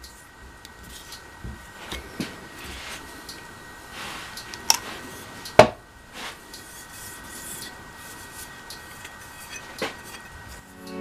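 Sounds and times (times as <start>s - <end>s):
steel disc rubbing on metal: 6.2s - 11.0s.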